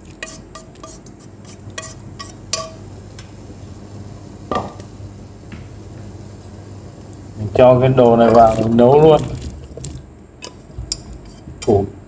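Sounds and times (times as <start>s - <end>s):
utensil scraping metal frying pan: 0.0s - 2.8s, 8.0s - 11.8s.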